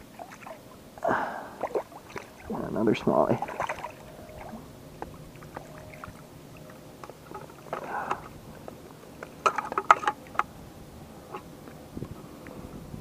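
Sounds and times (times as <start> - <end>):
river water splashing: 0.0 - 12.5.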